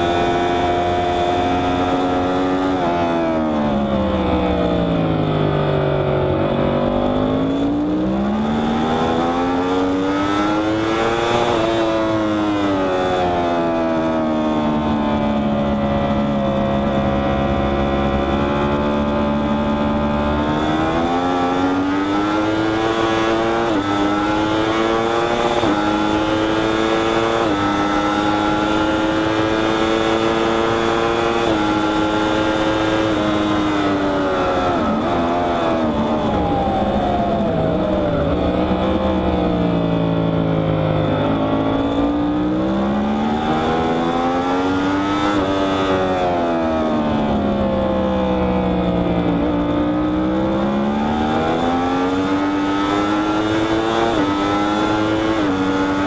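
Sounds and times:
motorcycle engine accelerating: 0:00.0 - 0:56.0
wind noise: 0:00.0 - 0:56.0.

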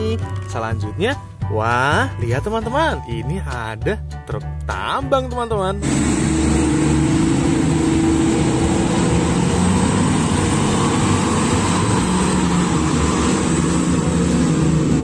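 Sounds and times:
haul truck diesel engine passing: 0:05.8 - 0:15.0.

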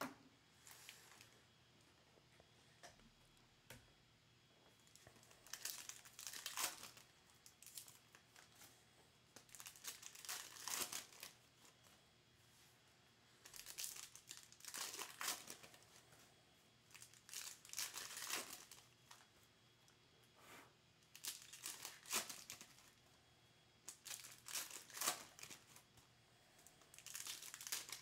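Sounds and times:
foil packs crinkling and tearing: 0:04.9 - 0:08.6, 0:09.4 - 0:11.8, 0:13.4 - 0:15.8, 0:16.9 - 0:19.3, 0:21.0 - 0:23.0, 0:23.9 - 0:25.8, 0:26.9 - 0:28.0.

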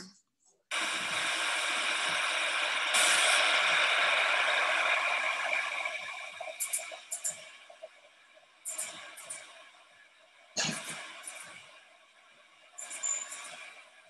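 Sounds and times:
machine-room hiss: 0:00.7 - 0:14.0.

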